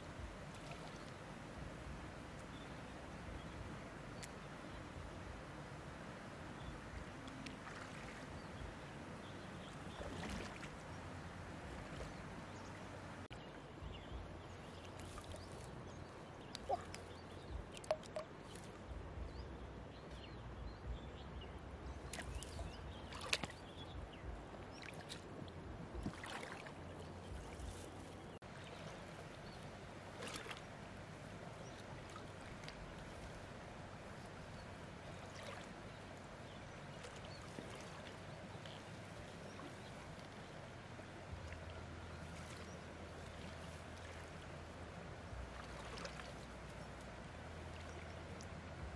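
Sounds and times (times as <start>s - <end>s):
shallow water sloshing: 7.2s - 13.3s, 14.6s - 18.8s, 22.1s - 48.9s
water dripping: 16.4s - 18.8s.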